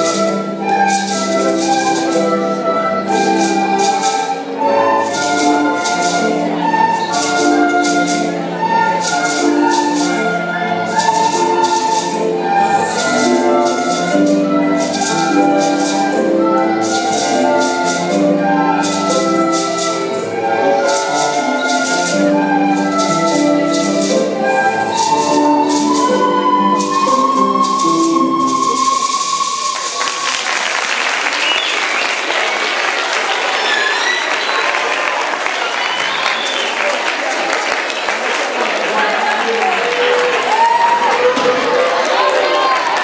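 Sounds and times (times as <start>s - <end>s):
shaker steady beat: 0.0s - 30.4s
flutes playing a tune: 0.0s - 32.6s, 33.3s - 37.0s
applause: 29.5s - 43.0s.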